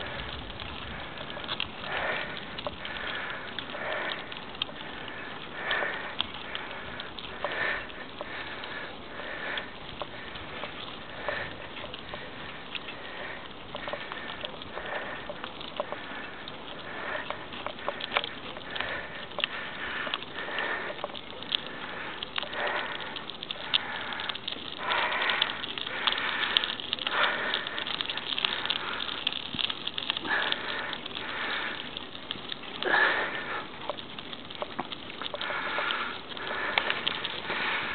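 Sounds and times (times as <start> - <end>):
wind noise: 0.0 - 5.0
heavy breathing: 0.0 - 37.9.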